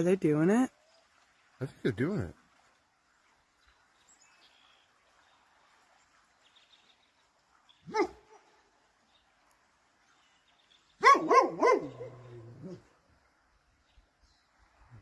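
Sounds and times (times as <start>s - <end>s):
dog barking: 7.9s - 8.5s, 11.0s - 12.8s.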